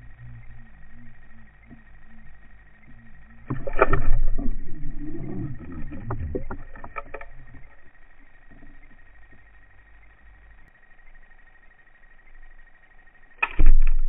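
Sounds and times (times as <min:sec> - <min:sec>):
water churning underwater: 0:00.0 - 0:10.2
sharp clicks: 0:13.4 - 0:14.0.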